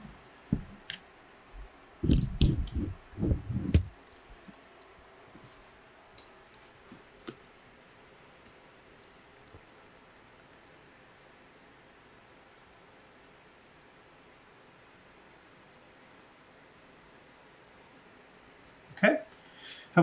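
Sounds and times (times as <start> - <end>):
camera handling thumps and rubs: 2.0 - 3.9
camera knock: 2.1 - 3.9.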